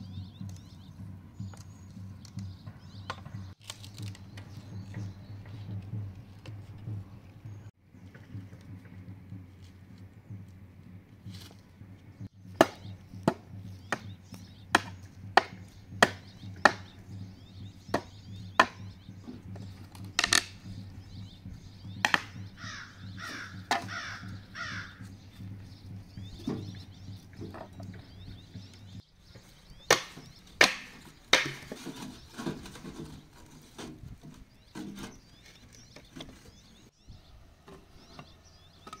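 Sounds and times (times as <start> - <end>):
hatchet chopping wood: 12.4 - 20.8, 21.9 - 25.0, 29.8 - 32.6.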